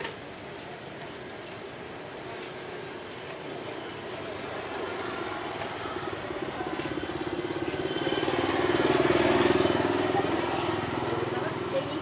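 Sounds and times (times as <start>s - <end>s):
motorcycle engine passing: 5.0s - 12.0s.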